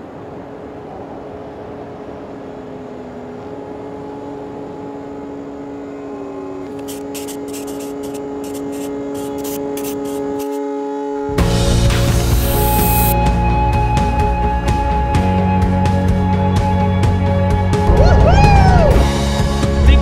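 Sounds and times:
sustained synth drone: 0.2 - 15.3
rushing noise: 11.4 - 13.2
fast high ticking beat: 12.2 - 13.2.

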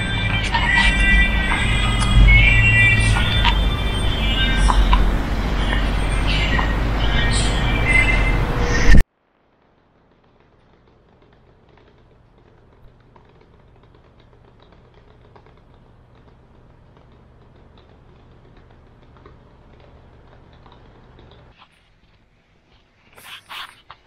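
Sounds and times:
low steady hum: 0.0 - 23.2
light clicks and ticks: 10.1 - 21.6.

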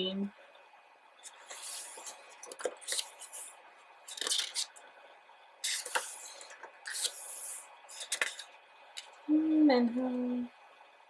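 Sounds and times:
book pages turning: 1.2 - 4.8, 5.6 - 9.1.

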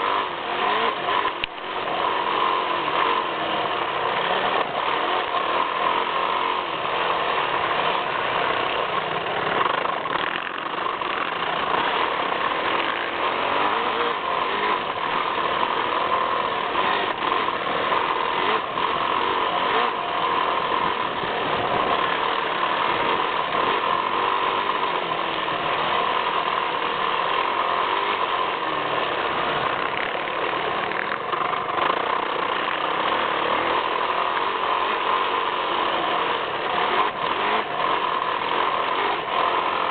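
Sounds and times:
motocross bike engine running hard: 0.0 - 39.9.

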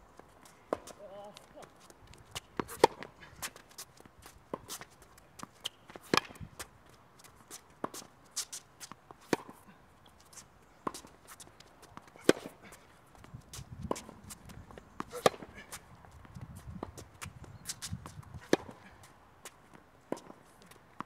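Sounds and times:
racket striking tennis ball: 2.3 - 3.6, 4.5 - 6.4, 7.8 - 9.6, 10.8 - 12.8, 13.5 - 15.9, 16.7 - 19.1.

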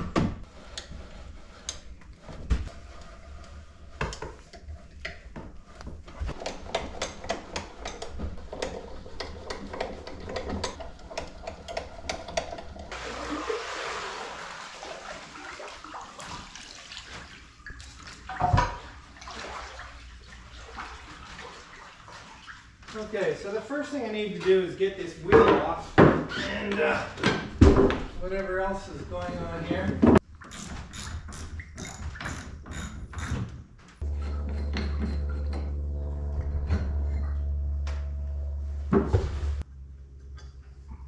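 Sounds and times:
water swishing and lapping: 8.4 - 23.7.

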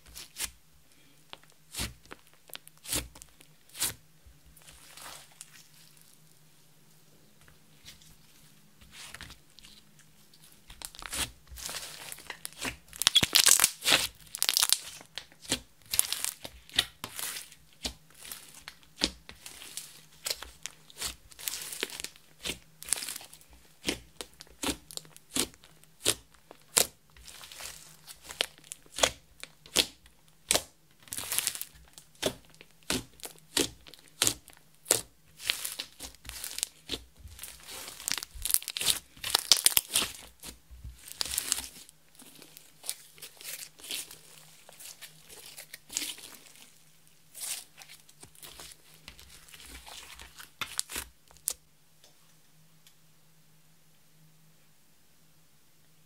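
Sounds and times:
slime popping and crackling: 10.7 - 46.7, 47.3 - 51.6.

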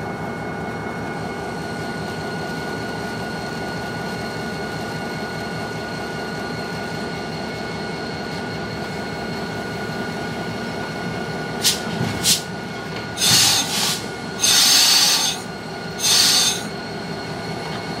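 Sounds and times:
high-pitched wheel squeals: 13.2 - 17.6.

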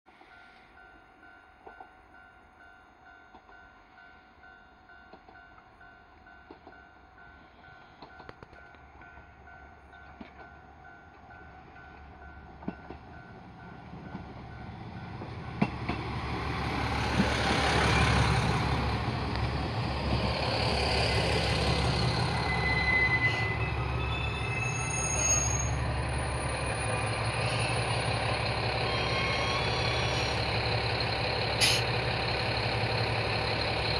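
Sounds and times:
train rolling in: 0.1 - 33.9
high-pitched brake squeals: 21.7 - 26.0, 28.7 - 30.5.

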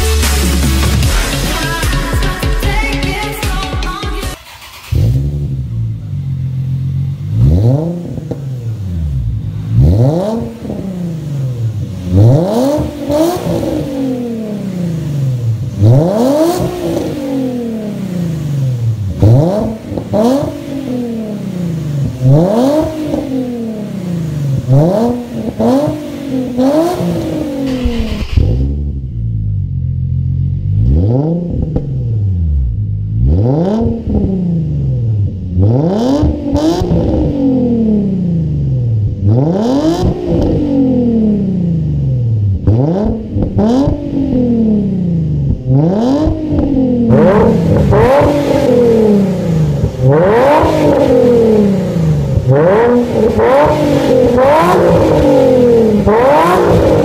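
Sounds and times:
car engine revving: 0.0 - 57.0.

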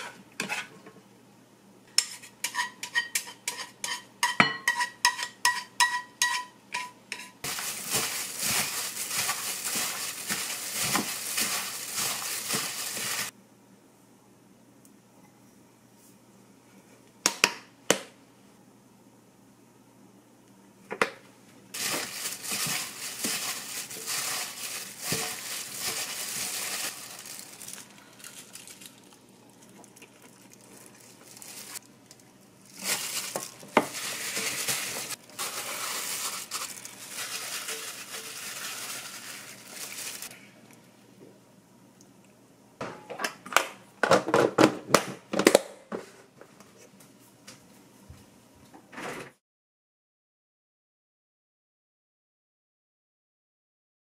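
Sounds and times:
crinkling rustling: 7.4 - 13.3, 21.8 - 40.3.

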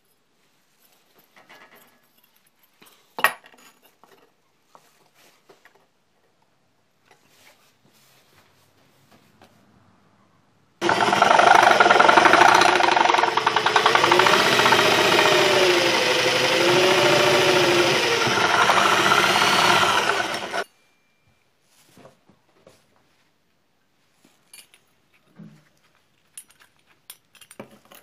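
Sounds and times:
electric drill boring through steel: 10.8 - 20.6.

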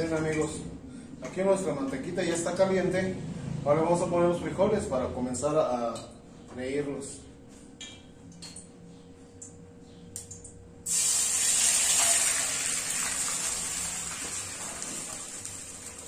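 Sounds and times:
beans sizzling in hot fat: 10.9 - 16.0.

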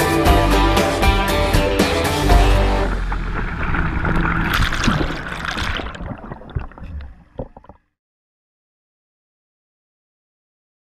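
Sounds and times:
steady rushing noise: 2.8 - 6.1.

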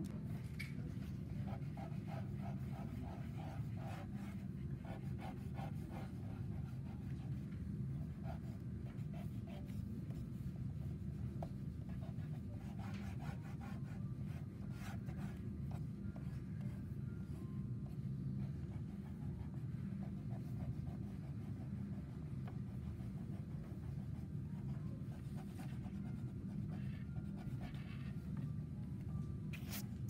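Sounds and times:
low room hum: 0.0 - 30.0
crayon scratching on paper: 1.1 - 7.4, 18.6 - 28.2.

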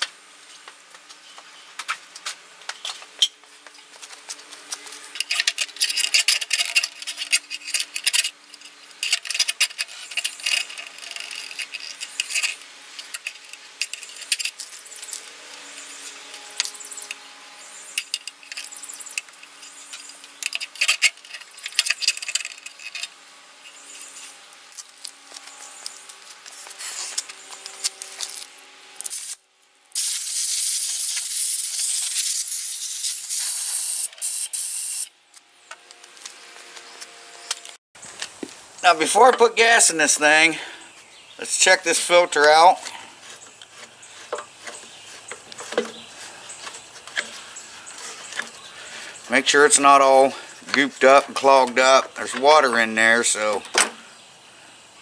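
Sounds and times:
clatter of engine parts: 4.8 - 15.2, 17.9 - 23.2
compressed air hissing: 30.0 - 35.1.

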